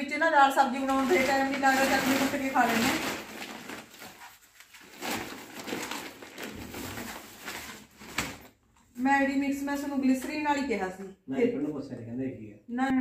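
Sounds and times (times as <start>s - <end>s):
plastic bags rustling: 0.7s - 8.7s.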